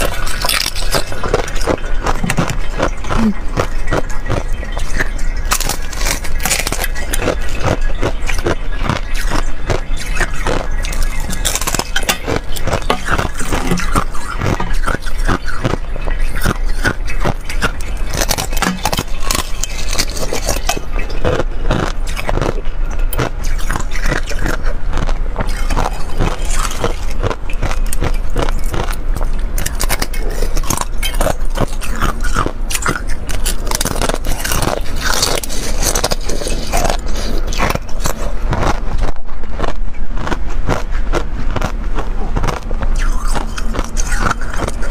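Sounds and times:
ice being crunched: 0.0 - 15.8, 16.4 - 22.6, 29.6 - 41.7.

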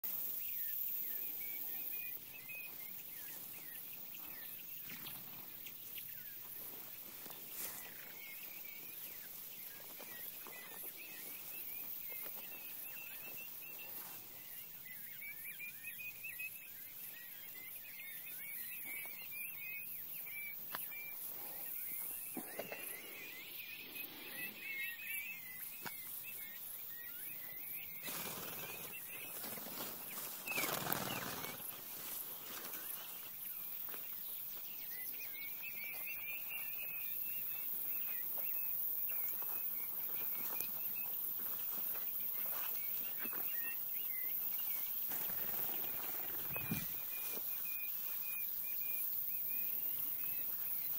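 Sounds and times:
young quail peeping: 0.0 - 31.8, 41.9 - 50.9.

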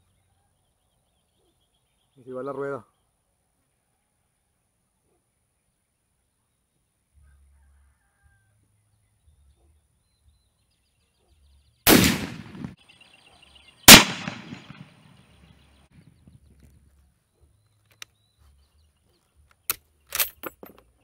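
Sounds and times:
rifle shots echoing: 11.9 - 12.8, 13.9 - 15.1.

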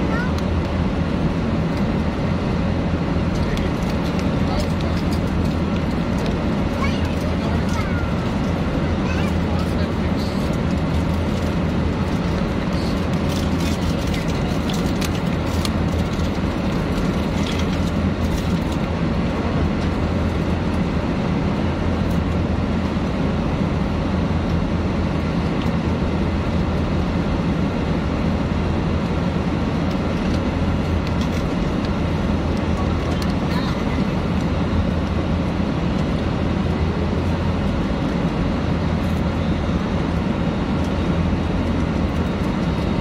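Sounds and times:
airliner cabin drone: 0.0 - 43.0.

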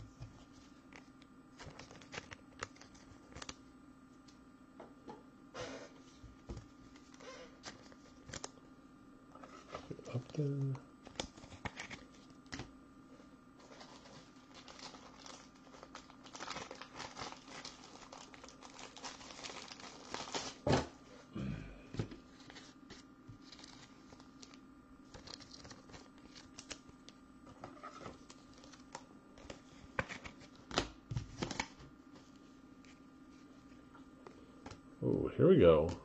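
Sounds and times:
card pack wrapper crinkling: 1.6 - 3.6, 13.6 - 20.7, 22.4 - 26.9, 27.7 - 31.8.

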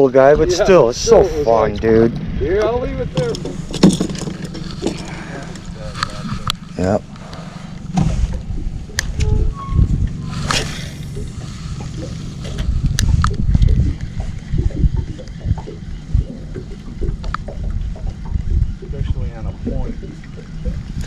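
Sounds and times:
low uneven rumble: 0.1 - 21.0
water sloshing and lapping: 3.1 - 21.0
sharp clicks: 10.0 - 18.7.

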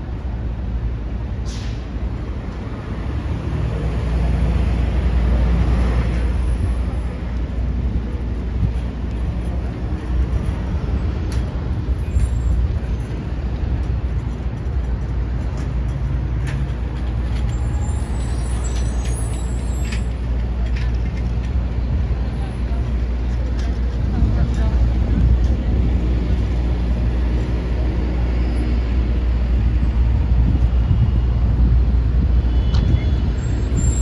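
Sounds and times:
street traffic rumble: 0.0 - 34.0.

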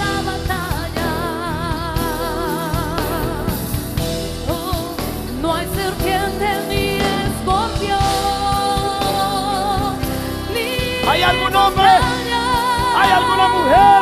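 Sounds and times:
band accompaniment: 0.0 - 14.0
drum beats: 0.0 - 14.0
person singing with vibrato: 4.6 - 14.0.

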